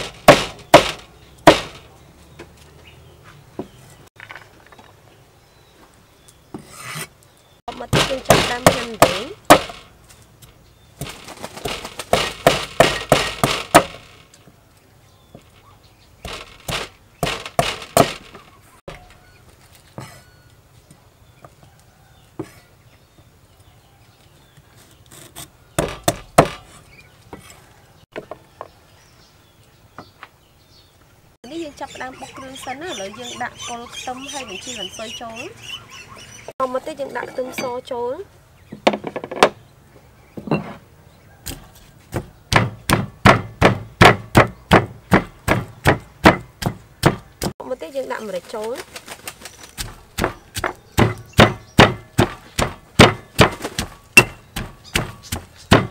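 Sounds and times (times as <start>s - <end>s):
cleaver chopping on wooden block: 0.0s - 1.8s, 7.7s - 9.9s, 11.0s - 14.2s, 16.2s - 18.4s, 25.8s - 26.8s, 41.4s - 47.6s, 49.8s - 55.9s
pestle pounding in stone mortar: 0.0s - 1.8s, 7.7s - 9.9s, 11.0s - 14.1s, 16.2s - 18.4s, 25.8s - 26.7s, 41.5s - 47.6s, 49.8s - 55.9s.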